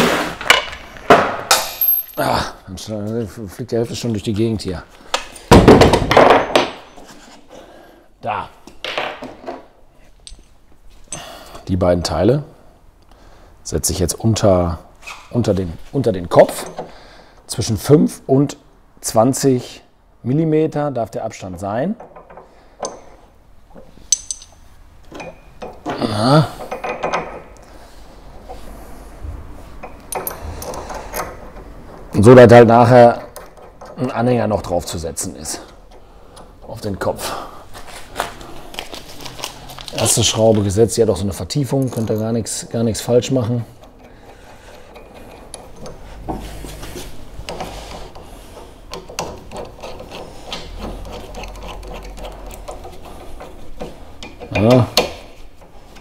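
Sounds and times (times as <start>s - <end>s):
metal parts clinking: 1.5s - 2.4s, 24.0s - 25.9s, 29.8s - 31.6s, 41.5s - 43.1s
allen key scraping screws: 29.7s - 32.2s, 33.2s - 34.1s, 43.3s - 56.0s.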